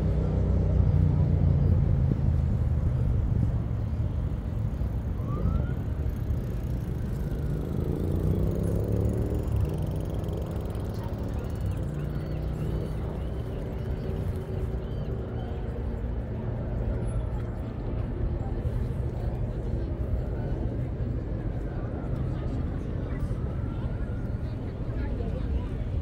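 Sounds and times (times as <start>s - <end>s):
low rumble of road traffic: 0.0s - 26.0s
passing vehicle engine drone: 0.0s - 26.0s.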